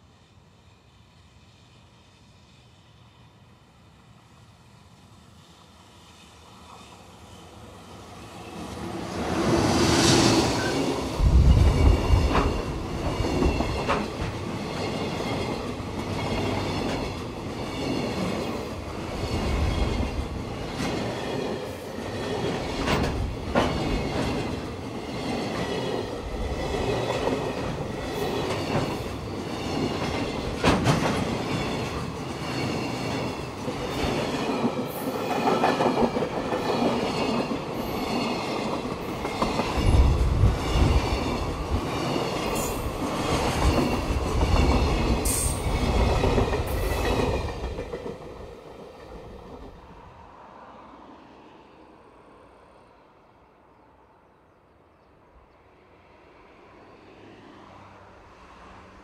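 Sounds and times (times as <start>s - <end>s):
freight train rumbling past: 0.0s - 53.6s
electric locomotive passing: 0.0s - 54.4s, 55.3s - 59.0s
wheels clacking over rail joints: 10.5s - 49.8s.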